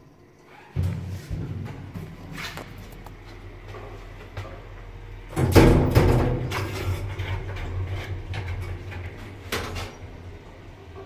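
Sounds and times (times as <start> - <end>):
lift humming: 0.0 - 11.0
lift doors closing with a bang: 0.5 - 3.0, 5.3 - 11.0.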